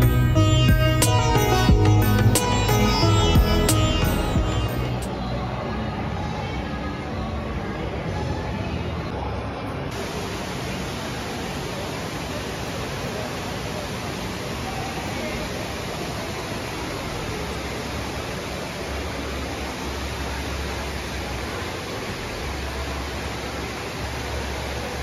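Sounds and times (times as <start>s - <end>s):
water pouring down waterfall: 9.9s - 25.0s.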